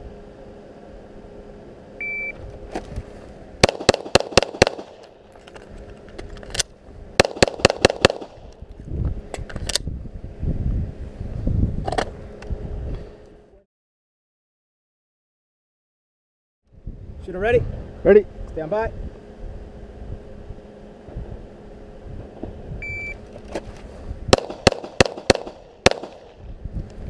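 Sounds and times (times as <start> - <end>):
shot timer beep: 2.0 - 2.4, 22.8 - 23.2
pistol shots: 3.6 - 5.0, 7.2 - 8.4, 24.3 - 26.4.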